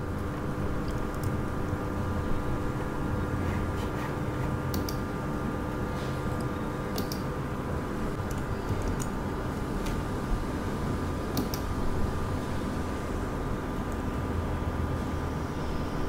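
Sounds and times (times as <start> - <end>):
steady electrical hum: 0.0 - 16.0
computer mouse clicks: 4.7 - 5.0, 6.9 - 7.3, 11.3 - 11.7.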